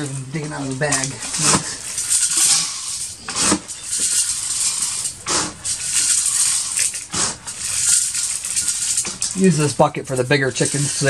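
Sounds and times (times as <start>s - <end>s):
feed pellets rattling and pouring: 0.0s - 11.0s
metal can scooping pellets: 0.0s - 11.0s.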